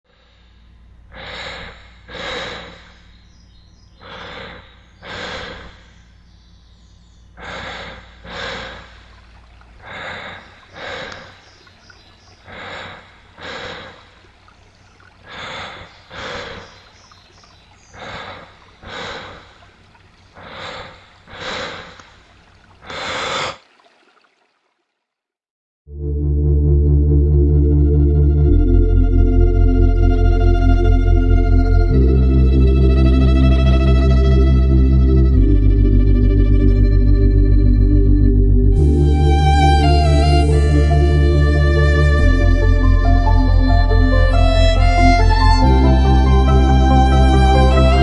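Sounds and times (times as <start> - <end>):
person breathing heavily: 0.1 - 3.3, 3.9 - 6.0, 7.4 - 9.2, 9.8 - 11.6, 12.3 - 14.2, 15.2 - 16.9, 17.8 - 19.6, 20.4 - 22.2, 22.8 - 23.6
faint low hum: 0.2 - 21.2.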